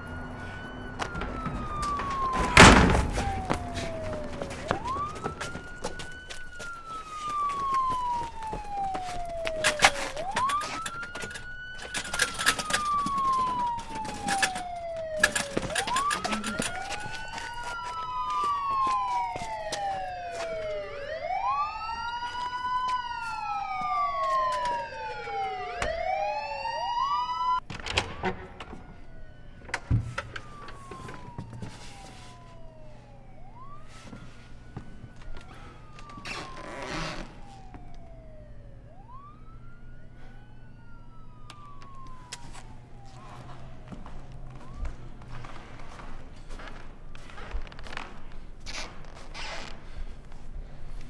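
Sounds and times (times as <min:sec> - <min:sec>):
police sirens wailing: 0:00.0 - 0:48.0.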